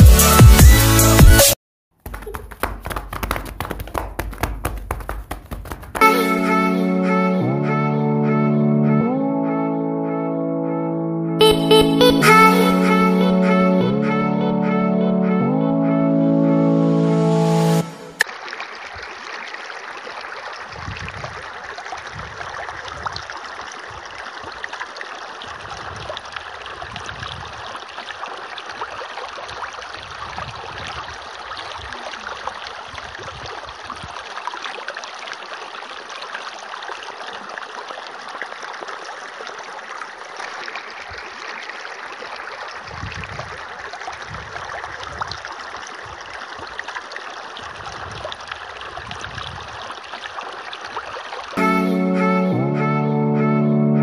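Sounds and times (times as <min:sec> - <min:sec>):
water splashing on plastic toys: 0:02.0 - 0:06.5.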